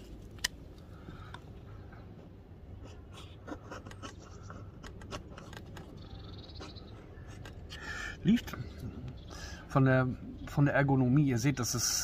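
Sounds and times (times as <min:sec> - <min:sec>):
knife scraping wooden stick: 0:02.9 - 0:07.8.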